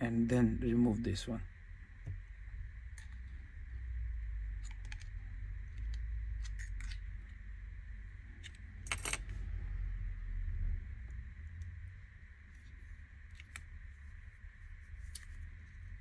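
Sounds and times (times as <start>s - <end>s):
steady low rumble: 0.0s - 16.0s.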